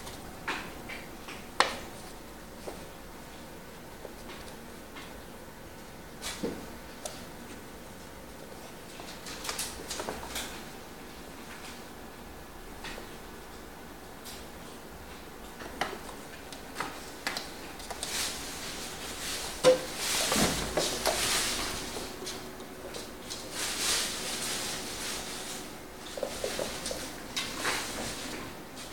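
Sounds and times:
rustling: 18.0 - 28.4.

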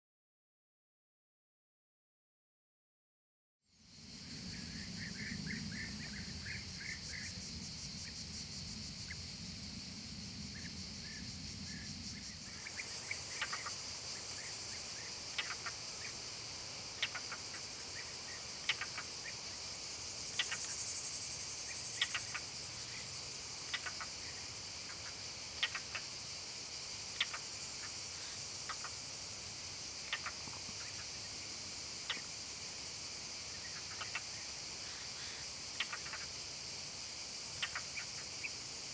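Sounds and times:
insects chirping: 3.7 - 38.9.

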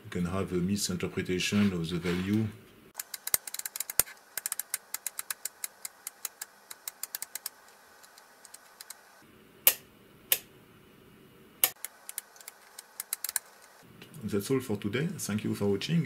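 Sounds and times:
rotary switch clicking: 3.0 - 9.0, 9.7 - 10.5, 11.6 - 13.6.

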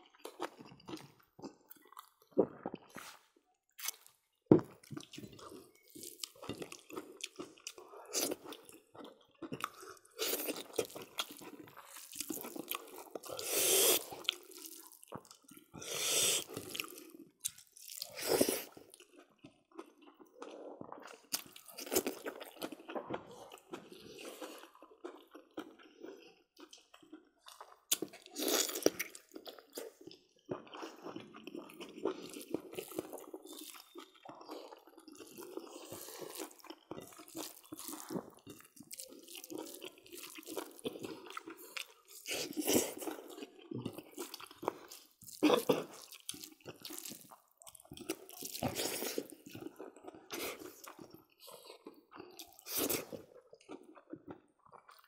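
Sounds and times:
people chewing and lip-smacking: 0.0 - 3.2, 3.8 - 55.0
wet slurping: 13.3 - 14.2.

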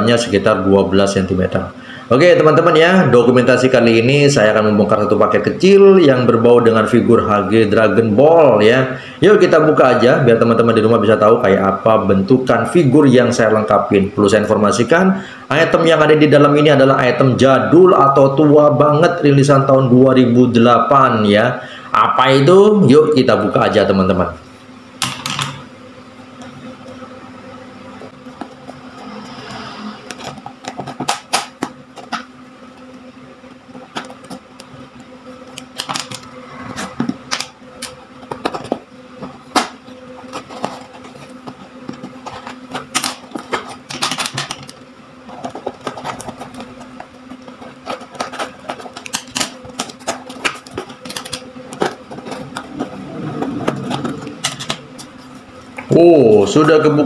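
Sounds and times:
scissors cutting cardboard: 36.8 - 55.3
knife cutting packing tape: 39.5 - 44.8, 47.6 - 52.7.

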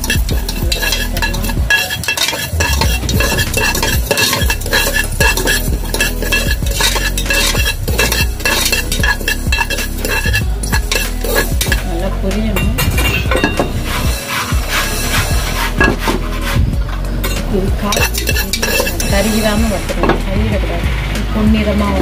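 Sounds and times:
seeds crackling and spluttering: 0.0 - 11.8
metal spoon scraping pot: 0.0 - 20.3.

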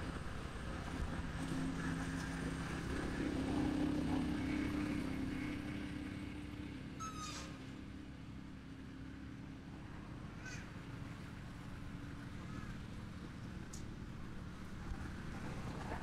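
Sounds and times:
engine hum passing by: 0.0 - 16.0
high-pitched animal call: 7.0 - 7.6.

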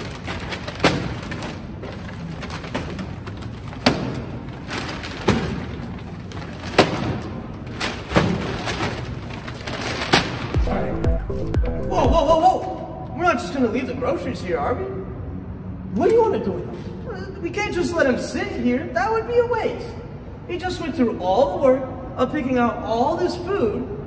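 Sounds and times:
paper bags rustling: 0.0 - 10.5
bags thumping down: 0.0 - 10.6.

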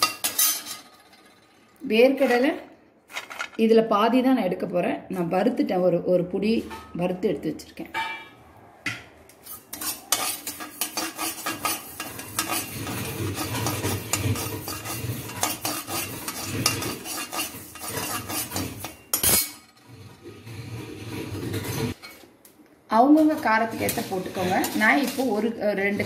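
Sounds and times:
metal ladle scraping pan: 0.0 - 3.6, 9.4 - 22.3, 23.2 - 26.0.

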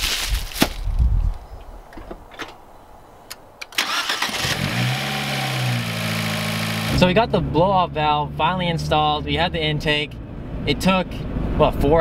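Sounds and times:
packaging rustling: 0.0 - 0.9
car engine starting and idling: 3.6 - 12.0.

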